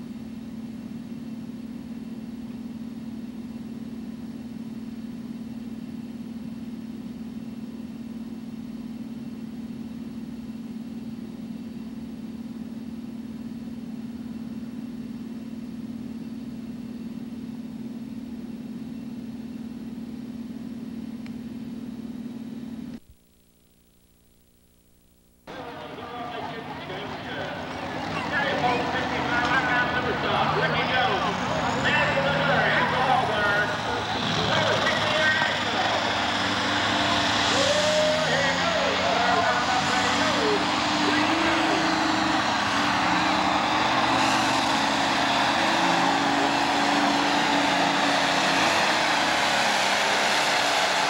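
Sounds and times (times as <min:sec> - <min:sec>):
steady low hum: 0:00.0 - 0:25.5.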